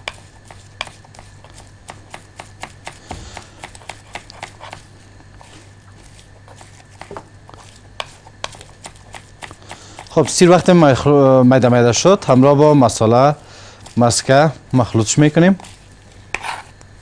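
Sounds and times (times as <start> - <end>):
knife chopping on wooden board: 0.0 - 4.8, 8.0 - 10.4
steady low hum: 0.0 - 17.0.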